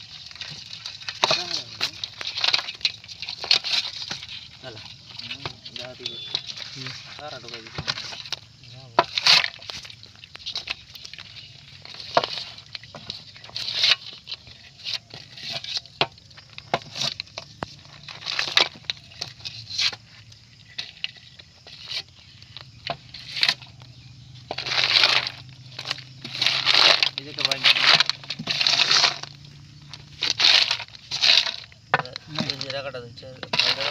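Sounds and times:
snail shells clicking and rattling: 0:00.0 - 0:33.9.

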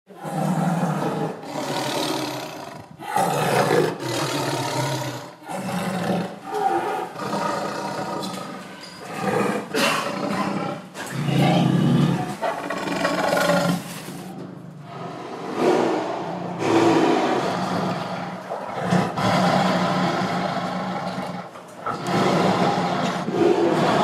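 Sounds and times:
roaring animal calls: 0:14.8 - 0:24.0.

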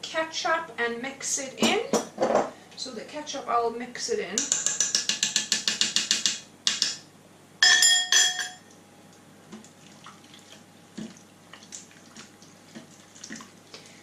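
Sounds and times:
spoon knocking on metal pot: 0:07.6 - 0:08.6
spoon clinking in metal pot: 0:07.6 - 0:08.7.

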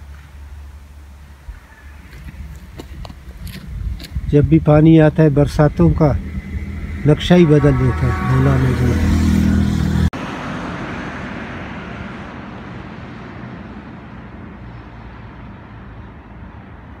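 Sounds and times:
bus driving past: 0:00.0 - 0:17.0
loud low engine drone: 0:03.6 - 0:15.1.

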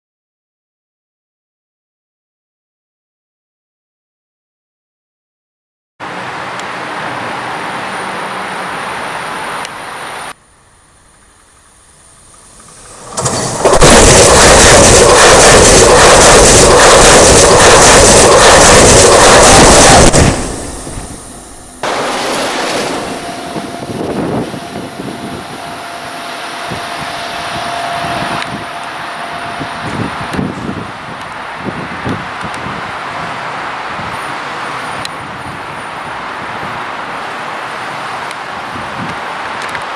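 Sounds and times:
high-speed train passing overhead: 0:06.0 - 0:39.9
rushing noise: 0:06.0 - 0:39.9
steady high whine: 0:09.6 - 0:33.4.

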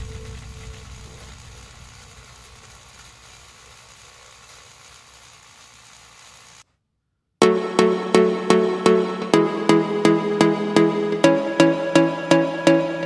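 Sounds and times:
toy train motor whirring: 0:01.2 - 0:06.6.

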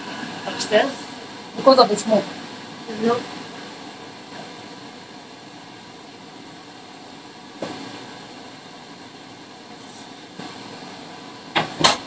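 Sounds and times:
kitchen background noise: 0:06.7 - 0:12.0.

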